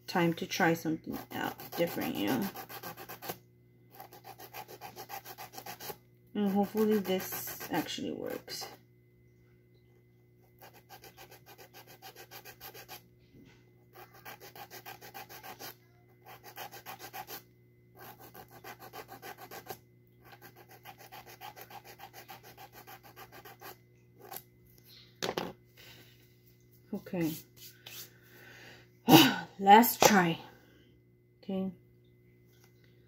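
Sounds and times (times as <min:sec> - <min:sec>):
nail file rasping on fingernail: 0:01.1 - 0:08.4, 0:10.6 - 0:13.0, 0:13.9 - 0:17.4, 0:18.0 - 0:24.4.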